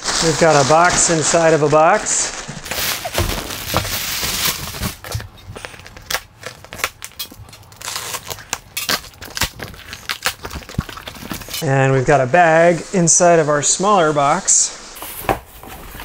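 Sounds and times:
packing paper rustling: 0.0 - 11.6
cardboard crackling and clicking: 0.1 - 11.6.

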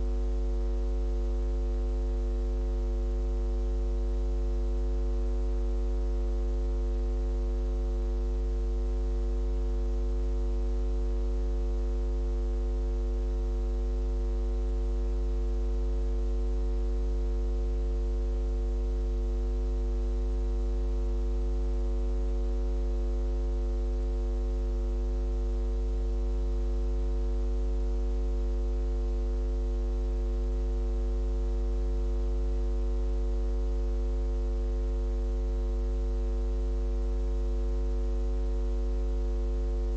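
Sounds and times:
electrical mains hum: 0.0 - 0.2, 38.4 - 39.9.

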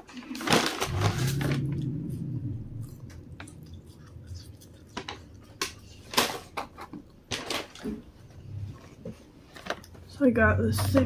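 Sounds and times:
paper bag rustling and crinkling: 0.0 - 1.6
low hum: 0.8 - 9.1.

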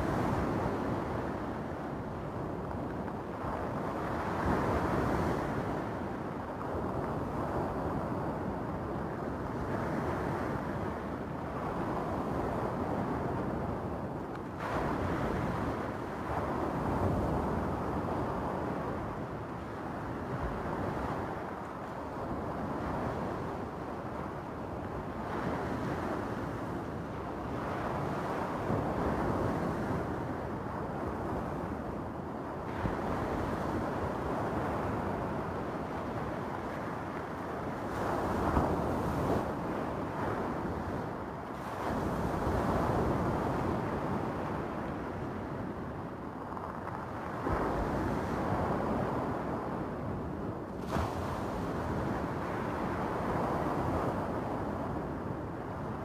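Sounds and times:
waves washing over stony beach: 14.5 - 31.5, 32.3 - 56.0.

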